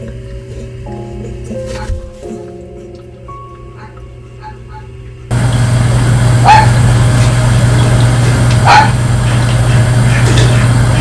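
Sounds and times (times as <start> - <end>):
faint music: 0.0 - 5.3
dog barking: 3.8 - 4.9, 6.4 - 6.8, 8.6 - 9.0
loud steady hum: 5.0 - 11.0.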